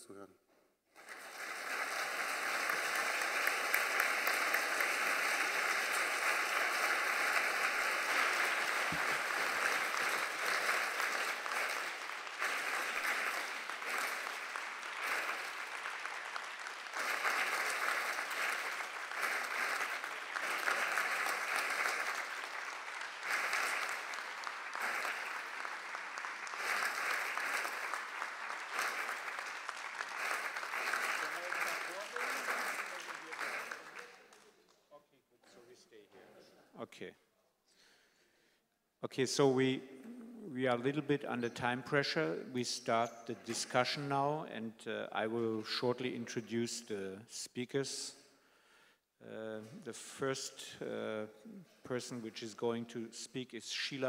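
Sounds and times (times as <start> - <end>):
audience applauding: 0.9 - 34.8.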